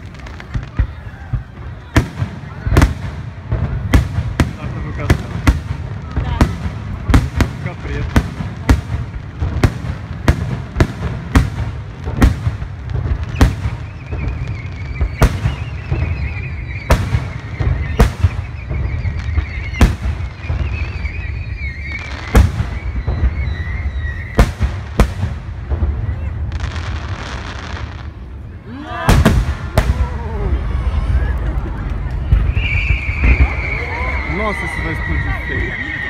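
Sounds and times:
wavering high whistle: 13.7s - 24.4s, 32.3s - 36.0s.

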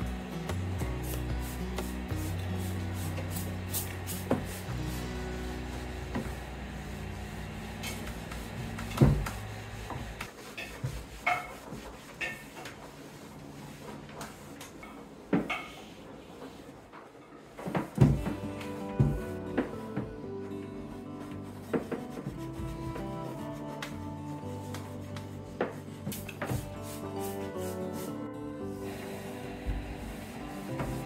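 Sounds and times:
cloth rubbing on wood: 0.2s - 14.6s, 20.8s - 28.2s, 28.8s - 31.0s.

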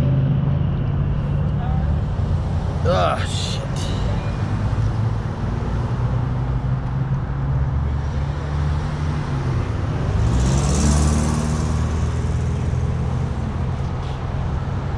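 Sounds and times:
engine humming: 0.0s - 9.0s.

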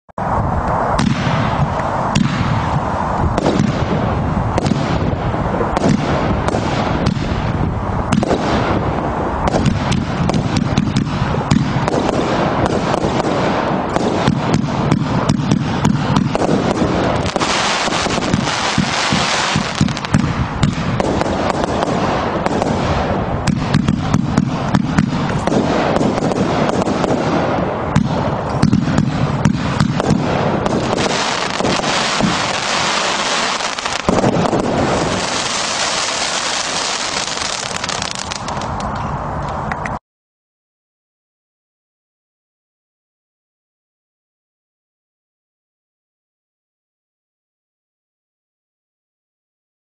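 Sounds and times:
firework hiss: 0.2s - 39.0s
firework shells launching and bursting: 8.1s - 39.0s.

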